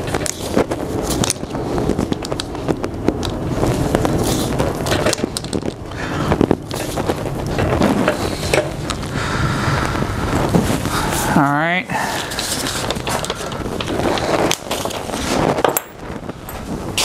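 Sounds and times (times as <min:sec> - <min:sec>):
small clicks and rustling: 0:00.0 - 0:09.1, 0:12.2 - 0:17.0
gloved hands handling hose: 0:12.0 - 0:17.0.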